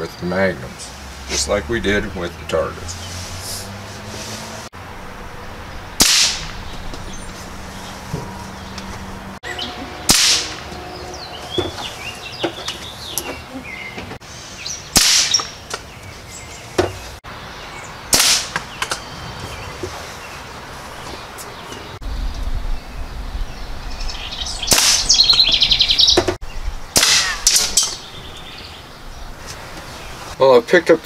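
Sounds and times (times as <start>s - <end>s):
birds chirping faintly: 0.0s - 26.9s, 27.6s - 31.0s
air rifle shots: 6.0s - 6.6s, 10.1s - 10.6s, 14.9s - 15.6s, 18.1s - 18.6s, 24.7s - 25.2s, 26.9s - 28.0s.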